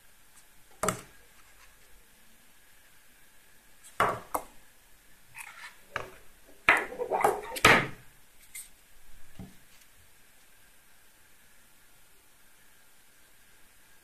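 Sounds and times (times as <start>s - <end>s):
scrapes and knocks on a table: 5.4s - 8.0s.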